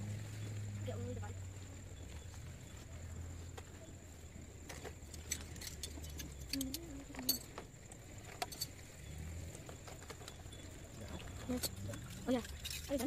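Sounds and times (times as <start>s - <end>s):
light clinks and clicks: 4.5s - 13.0s.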